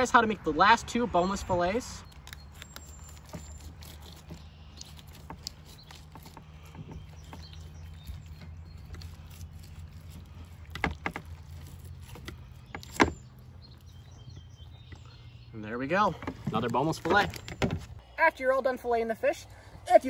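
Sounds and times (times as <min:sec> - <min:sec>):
knife scraping along fish bones: 0:02.1 - 0:13.1.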